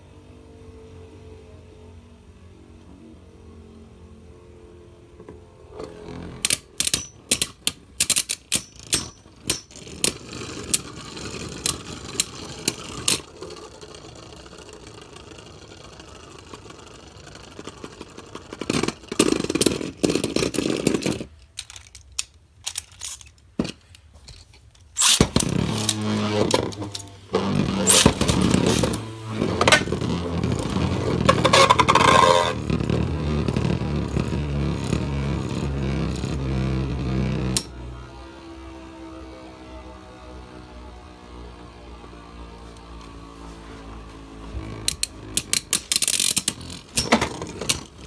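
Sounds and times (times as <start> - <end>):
spinning tops whirring: 6.4 - 23.4, 24.9 - 37.7
plastic tops clashing clicks: 19.2 - 24.0.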